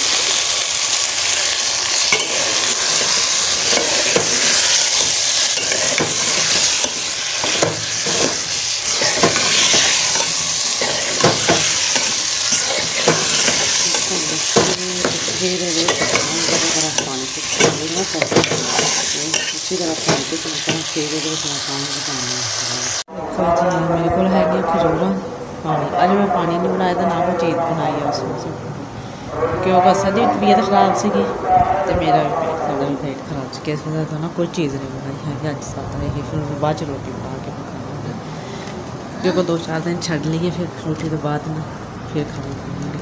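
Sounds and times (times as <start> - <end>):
vegetables sizzling in a pot: 0.0 - 23.1
metal spoon scraping a pot: 2.0 - 20.9.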